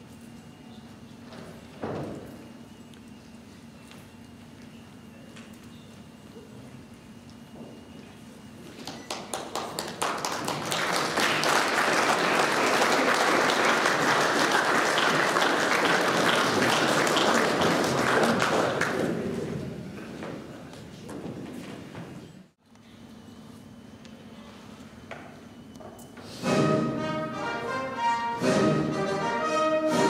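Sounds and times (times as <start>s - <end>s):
audience applauding: 8.8s - 19.5s.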